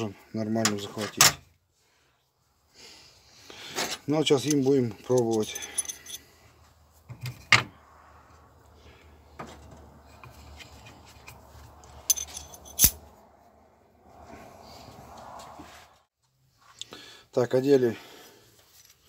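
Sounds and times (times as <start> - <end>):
metal cutters clinking: 4.4 - 6.2, 12.0 - 13.0.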